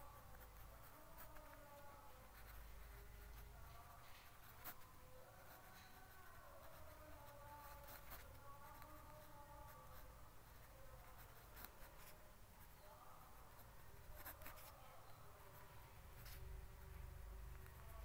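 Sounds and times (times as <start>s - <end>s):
pen scratching on paper: 0.0s - 12.8s, 13.4s - 14.8s.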